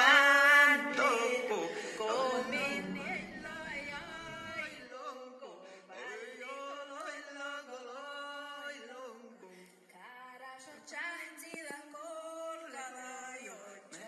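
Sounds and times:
man chant-singing: 0.0 - 9.4.

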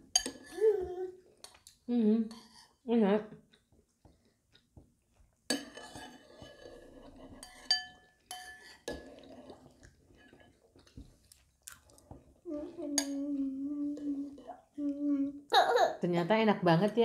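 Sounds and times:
spoons clinking on ceramic bowls: 0.1 - 0.6, 7.4 - 9.0
person humming: 0.6 - 1.2, 12.5 - 15.4
chewing and mouth sounds: 3.4 - 5.4, 9.1 - 12.4.

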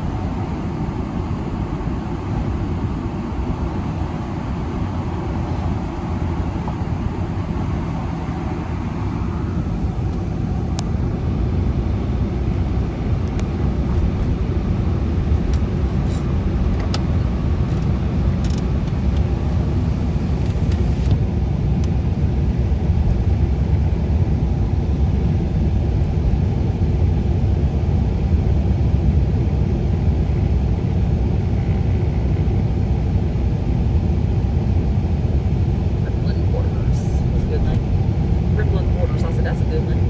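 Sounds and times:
vehicle road and engine rumble: 0.0 - 40.0.

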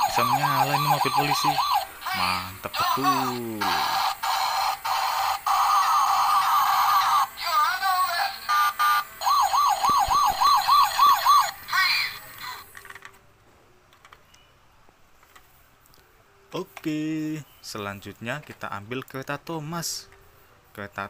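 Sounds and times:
toy police siren: 0.0 - 12.6.

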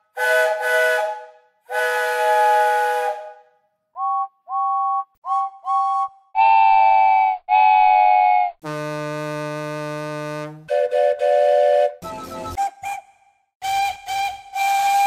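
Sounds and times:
diesel locomotive horn: 0.1 - 3.5, 8.6 - 12.2
cartoon steam whistle toots: 0.2 - 3.4, 4.0 - 8.6, 10.7 - 15.0.

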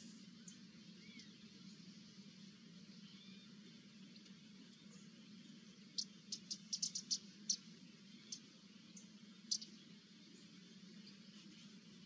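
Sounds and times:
low steady hum: 0.0 - 12.0
sharp high-pitched ticks: 6.0 - 7.6.

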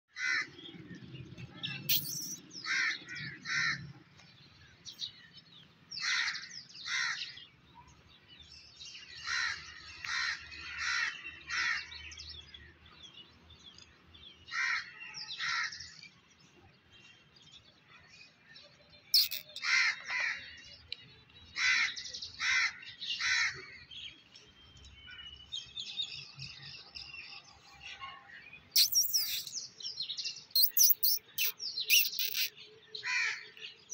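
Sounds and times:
crows cawing: 0.2 - 0.6, 2.6 - 3.9, 6.0 - 7.3, 9.2 - 11.9, 33.0 - 33.5.

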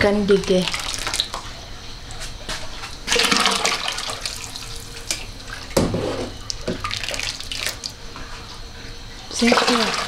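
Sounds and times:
water pouring and splashing: 0.2 - 1.6, 2.3 - 5.8, 6.4 - 8.6, 9.2 - 10.0.

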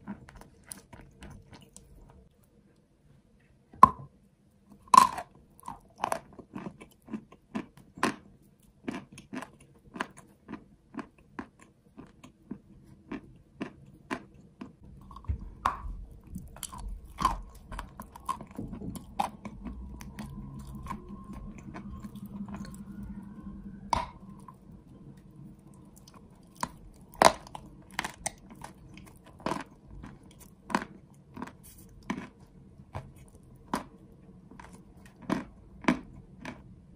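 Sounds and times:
low rumble: 14.8 - 31.2.

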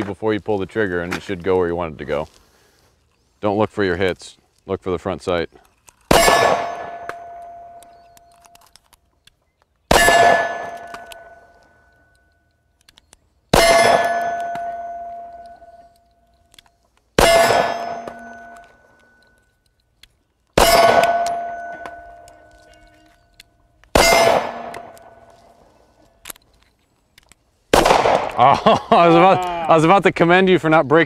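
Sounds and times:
pistol shots: 6.1 - 7.9, 9.9 - 11.4, 13.5 - 15.7, 17.2 - 18.8, 20.6 - 22.5, 23.9 - 25.2, 27.7 - 28.4
steel target ringing: 6.1 - 8.1, 9.9 - 11.6, 13.6 - 15.9, 17.2 - 19.2, 20.6 - 22.5, 24.0 - 25.3.

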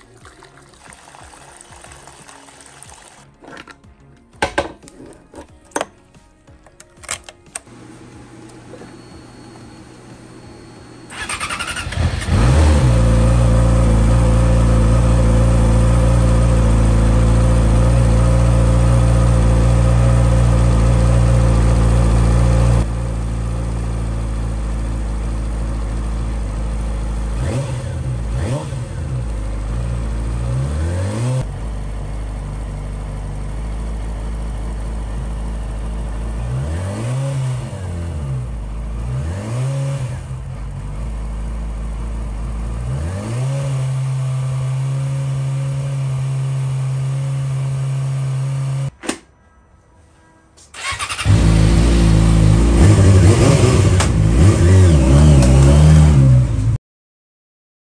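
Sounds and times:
motorcycle throttle blips: 8.5 - 15.0
motorcycle engine idling: 9.2 - 30.5, 31.5 - 36.5, 40.3 - 42.9.

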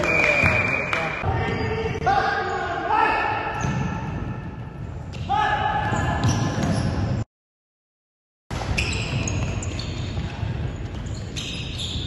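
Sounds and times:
shoe squeaks on wooden floor: 8.8 - 10.2, 11.0 - 12.0.

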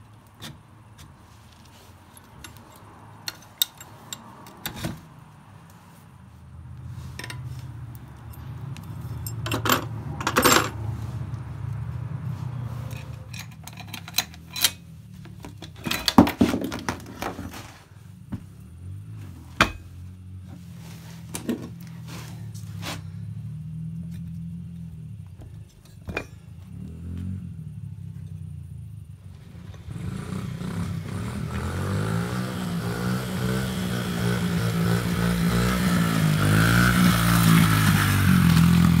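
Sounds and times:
metal parts clinking: 2.1 - 4.9, 7.1 - 10.8, 12.8 - 17.6
dirt bike engine running: 26.2 - 39.0.

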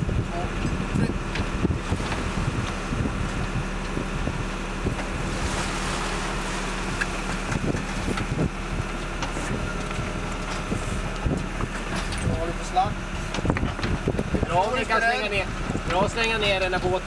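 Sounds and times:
boat engine humming: 0.0 - 17.0
wind buffeting microphone: 0.0 - 17.0
wash of waves: 1.6 - 9.5.

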